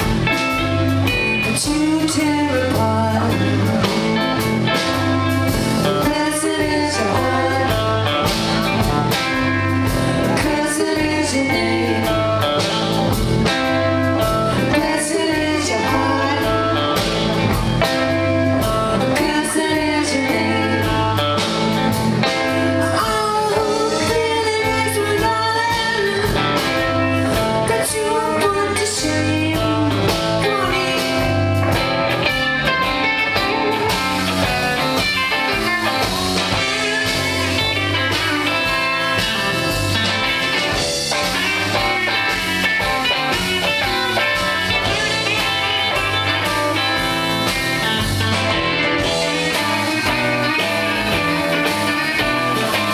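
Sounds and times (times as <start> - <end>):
drums: 0.0 - 52.9
electric bass: 0.0 - 52.9
electric guitars: 0.0 - 52.9
woman singing: 0.5 - 8.8, 9.8 - 12.9, 14.2 - 17.3, 18.9 - 21.6, 22.8 - 31.8.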